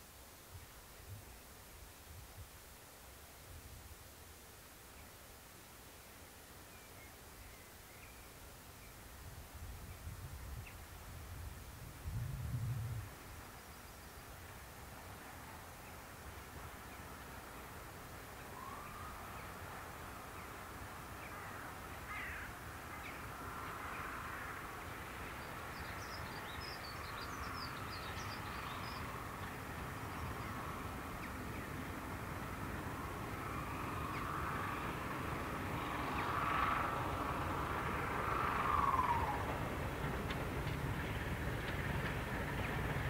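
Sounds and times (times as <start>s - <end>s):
crows cawing: 21.4s - 22.6s
diesel locomotive rumble: 24.6s - 43.0s.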